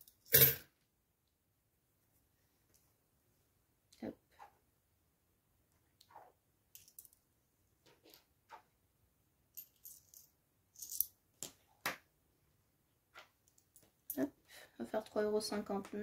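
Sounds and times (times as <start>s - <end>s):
coins clinking on a table: 0.0s - 0.6s, 9.6s - 11.1s.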